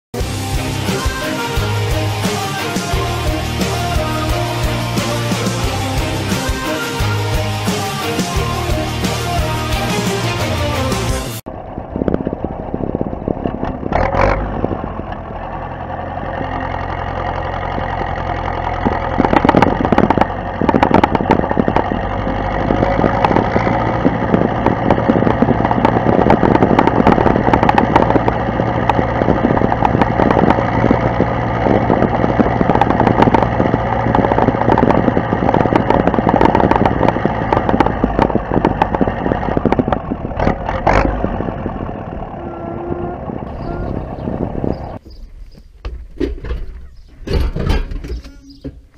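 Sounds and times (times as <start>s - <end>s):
tractor diesel engine running: 0.1s - 48.9s
trailer knocking and rattling: 12.2s - 48.9s.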